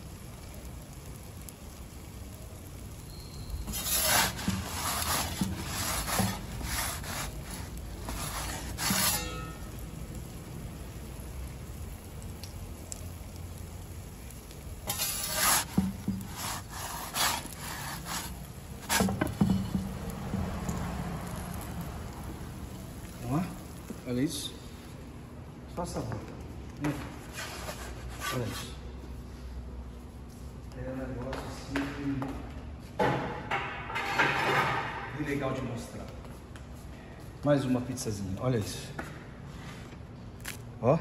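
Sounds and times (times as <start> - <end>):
metal peel scraping on stone: 3.7 - 9.7, 14.8 - 19.8, 27.2 - 28.8.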